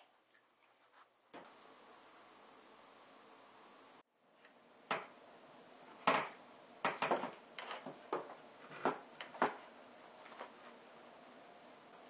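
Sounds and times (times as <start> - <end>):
wooden knocks and clatters: 6.0 - 9.7.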